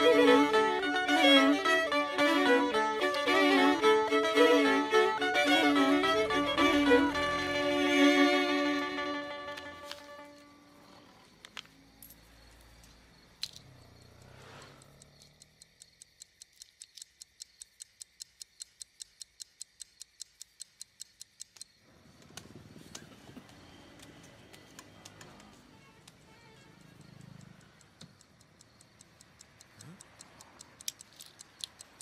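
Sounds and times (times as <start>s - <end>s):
pocket watch ticking: 13.3s - 21.8s, 25.2s - 32.0s.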